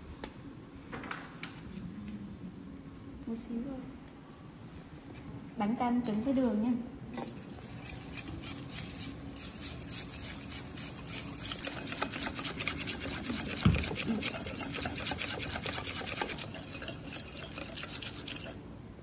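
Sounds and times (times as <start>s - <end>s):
whisk beating in metal bowl: 7.2s - 18.6s.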